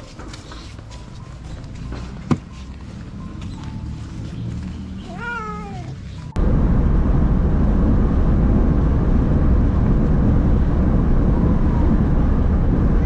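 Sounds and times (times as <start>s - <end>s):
road and engine rumble in car: 0.0s - 13.0s
cat meowing: 5.0s - 6.2s.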